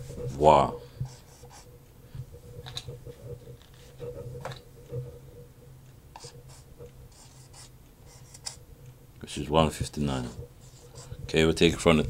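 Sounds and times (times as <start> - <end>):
marker squeaking on whiteboard: 6.2 - 8.6, 10.1 - 11.2.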